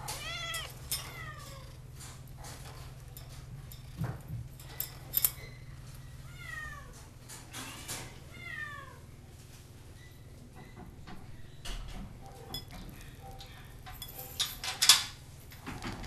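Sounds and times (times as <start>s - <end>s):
cat meowing: 0.0s - 1.6s.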